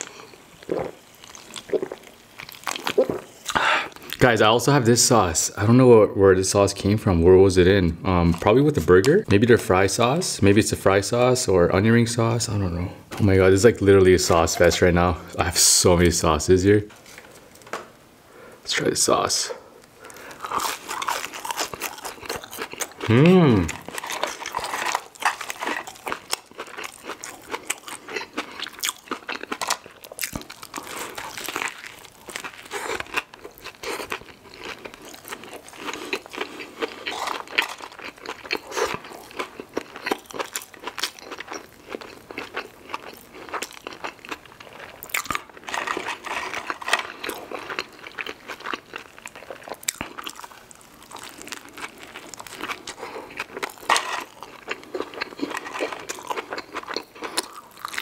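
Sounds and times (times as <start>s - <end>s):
person chewing food: 0.0s - 4.2s, 19.8s - 58.0s.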